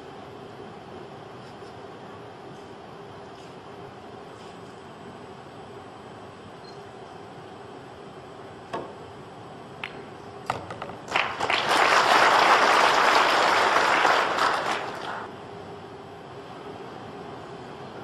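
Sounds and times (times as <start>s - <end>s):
audience applause: 11.1s - 15.3s.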